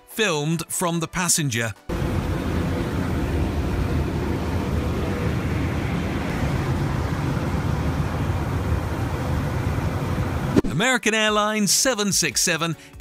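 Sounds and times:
propeller plane engine drone: 0:01.9 - 0:10.6
rushing air noise: 0:01.9 - 0:10.7.

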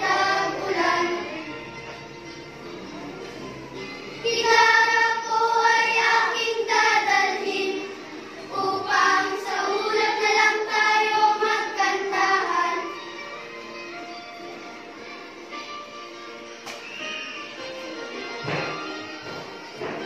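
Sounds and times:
song with sung vocals: 0:00.0 - 0:02.0.

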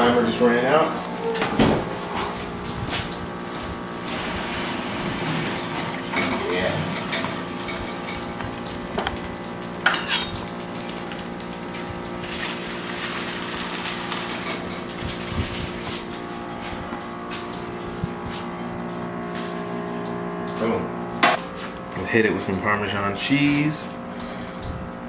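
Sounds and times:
steady hum: 0:00.0 - 0:25.0
aluminium foil rustling: 0:01.9 - 0:17.6.

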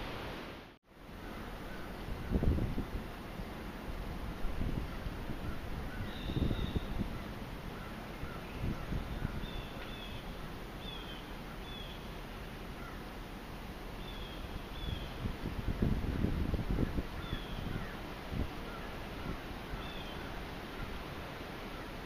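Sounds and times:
wind buffeting microphone: 0:01.7 - 0:03.2, 0:04.0 - 0:10.5, 0:14.7 - 0:21.3
birds chirping: 0:04.8 - 0:13.2, 0:13.9 - 0:15.3, 0:16.8 - 0:21.0.

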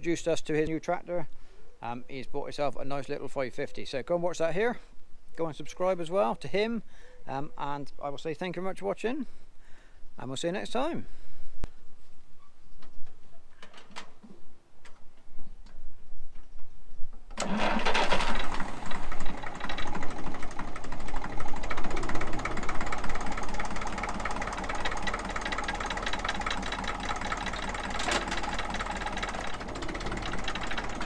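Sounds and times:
diesel tractor engine running: 0:17.4 - 0:31.0.

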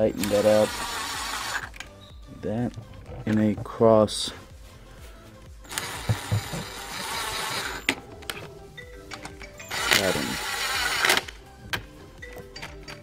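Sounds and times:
cordless power driver running: 0:00.0 - 0:01.8, 0:05.6 - 0:08.0, 0:09.7 - 0:11.4.

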